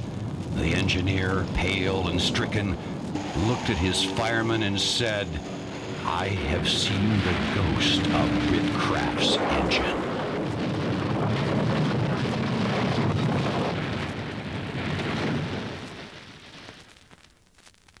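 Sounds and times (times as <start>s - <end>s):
low rumble: 0.0s - 15.3s
steam hissing: 2.4s - 9.0s.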